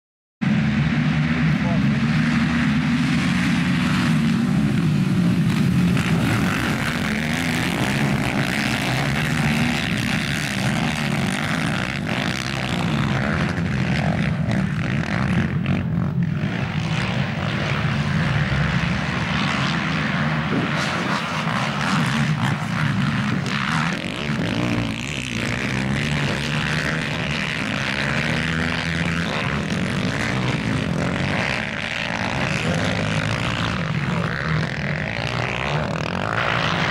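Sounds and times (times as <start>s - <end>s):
quad bike engines revving: 0.4s - 36.9s.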